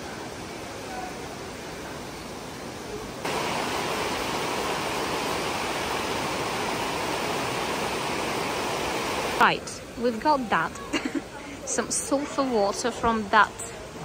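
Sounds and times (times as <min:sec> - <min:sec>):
river rushing through rapids: 0:00.0 - 0:10.0.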